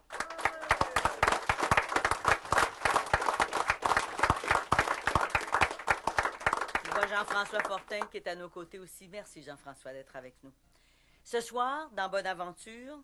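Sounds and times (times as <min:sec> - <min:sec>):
crowd applauding: 0:00.0 - 0:08.1.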